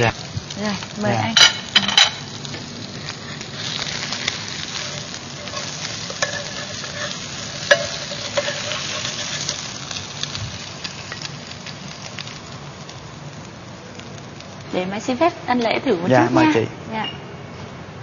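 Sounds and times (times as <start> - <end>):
cake sizzling in hot lard: 0.0 - 16.8
spatula scraping a pan: 3.3 - 9.7.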